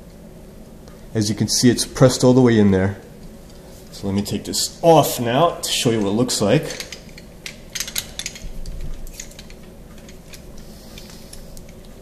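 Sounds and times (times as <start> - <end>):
metal tool clinking and rattling: 6.7 - 10.4.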